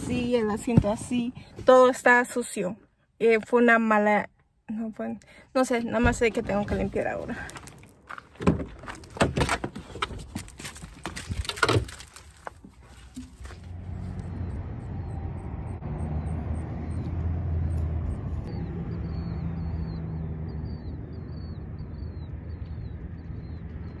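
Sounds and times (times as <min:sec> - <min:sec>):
low engine drone: 0:13.5 - 0:24.0.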